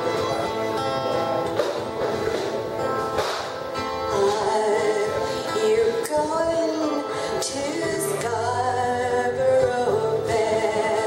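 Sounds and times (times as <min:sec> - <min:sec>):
acoustic guitar strumming: 0:00.0 - 0:11.0
woman singing: 0:04.1 - 0:11.0.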